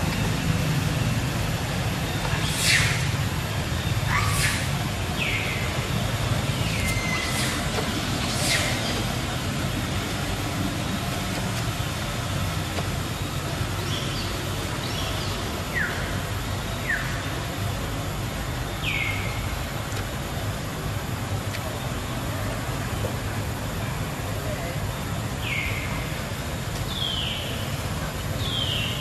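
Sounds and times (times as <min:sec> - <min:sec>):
steady low rumble: 0:00.0 - 0:24.3
high-pitched animal calls: 0:04.0 - 0:04.8.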